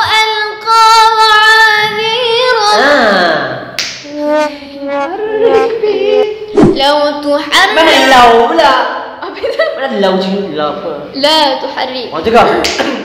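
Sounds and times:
girl chanting melodically: 0.0 - 3.3.

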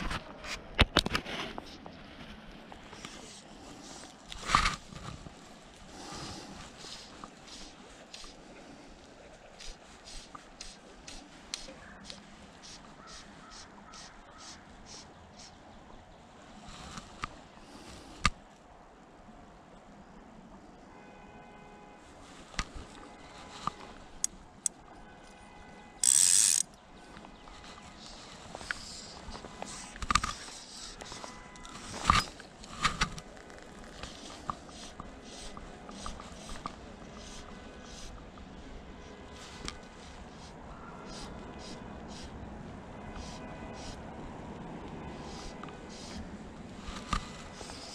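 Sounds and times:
stream flowing: 0.0 - 47.9
fly line rasping through rod guides: 2.9 - 8.4, 9.5 - 15.5, 26.0 - 26.8, 27.5 - 38.2, 45.2 - 47.9
fly line swishing: 26.0 - 26.6
fishing rod clicks and knocks: 26.0 - 27.3, 28.1 - 36.8.

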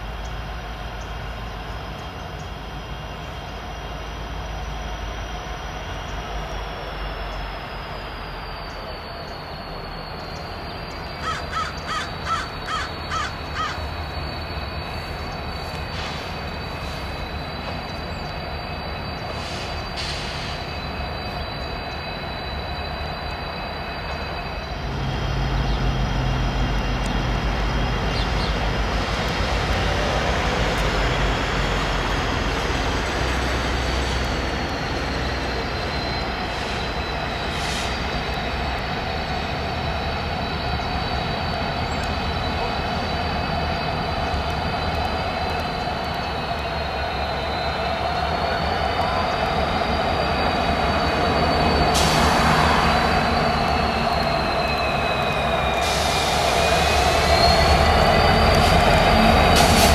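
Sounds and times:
diesel locomotive engine rumble: 0.0 - 59.9
crow cawing: 11.2 - 13.8.

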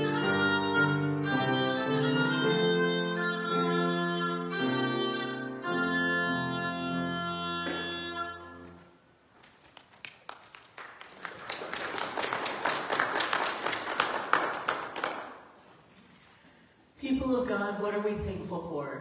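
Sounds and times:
congregation applauding: 9.6 - 15.7.

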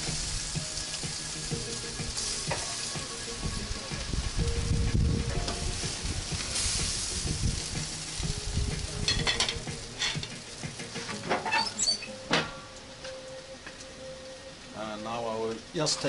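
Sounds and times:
grill sizzling: 0.0 - 16.0
tongs clinking on metal: 9.0 - 10.4.

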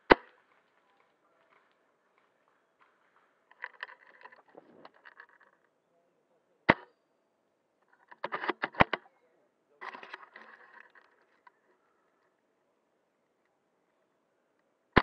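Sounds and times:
sharp airsoft rifle shot: 6.7 - 6.9
handling rustle: 9.8 - 11.7.

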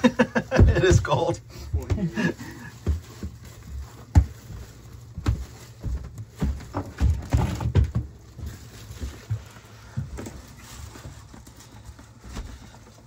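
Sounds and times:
plastic bag rustling: 0.0 - 13.0
footsteps thumping on floor: 1.7 - 10.4.

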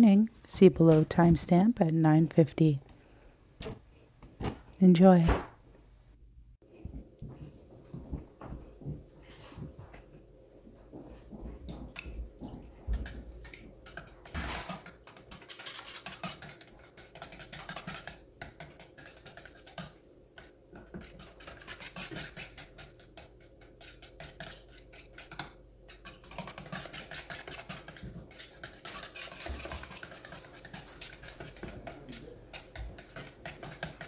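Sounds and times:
sticks stirring paint in metal can: 12.9 - 34.0.

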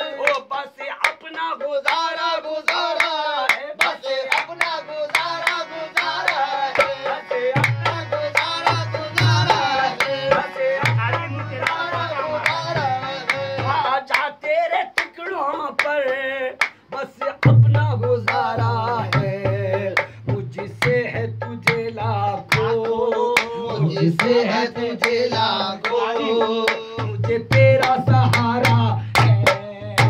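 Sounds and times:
people singing: 0.0 - 17.2, 17.9 - 30.0
hand claps: 0.2 - 14.3, 14.9 - 17.6, 23.4 - 23.6, 25.0 - 26.0, 26.6 - 29.6
harmonium melody: 3.8 - 14.4.

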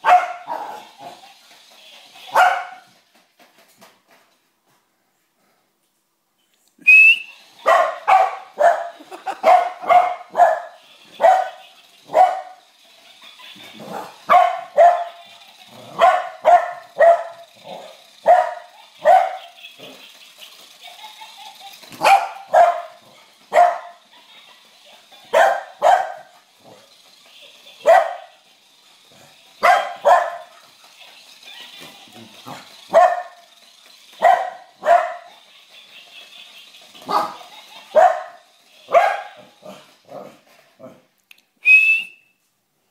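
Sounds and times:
dog barking: 0.0 - 0.9, 2.3 - 2.8, 7.6 - 12.6, 13.9 - 15.2, 15.9 - 17.4, 18.2 - 19.4, 22.0 - 24.0, 25.3 - 26.3, 27.8 - 28.3, 29.6 - 30.5, 32.9 - 33.4, 34.2 - 35.3, 37.1 - 39.4.

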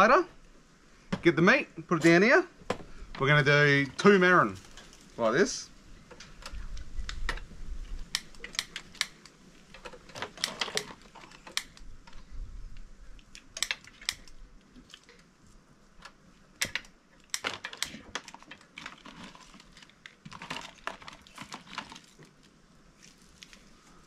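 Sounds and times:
crayfish shells cracking: 16.0 - 22.6.

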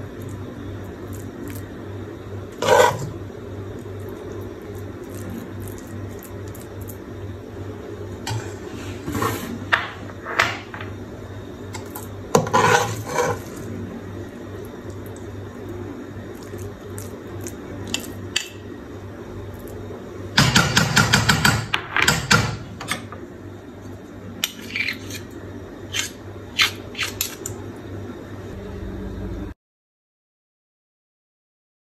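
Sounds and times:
metal ladle scraping metal pot: 2.6 - 3.2, 12.4 - 13.6, 24.4 - 25.3.

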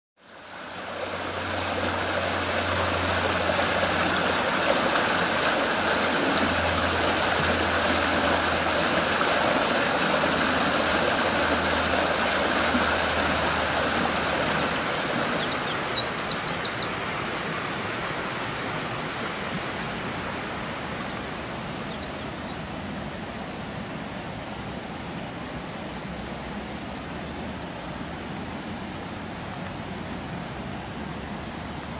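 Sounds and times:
stream rushing over shallows: 0.2 - 31.9
bird chirping: 14.4 - 17.3, 20.9 - 22.9.

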